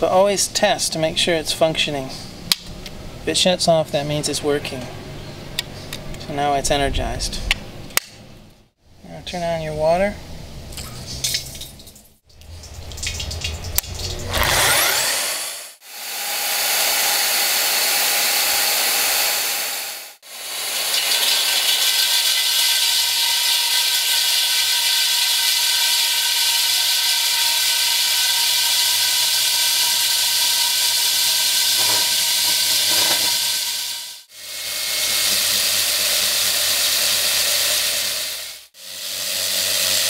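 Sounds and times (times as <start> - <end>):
drill bit cutting concrete: 14.2 - 40.0
core drill motor whining: 14.3 - 40.0.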